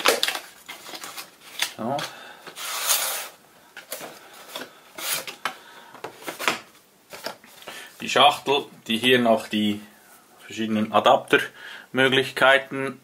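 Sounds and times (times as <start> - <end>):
cardboard sleeve scraping: 2.6 - 5.4.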